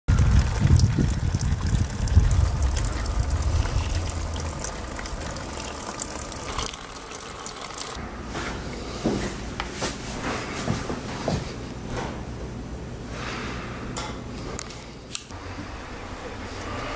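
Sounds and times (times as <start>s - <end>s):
heavy low rumble: 0.1s - 7.1s
water running and trickling: 0.1s - 8.0s.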